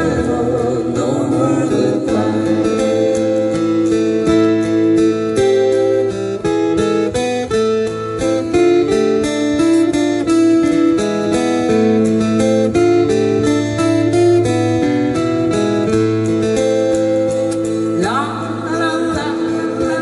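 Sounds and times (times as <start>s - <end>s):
acoustic guitars strumming and picking: 0.0s - 20.0s.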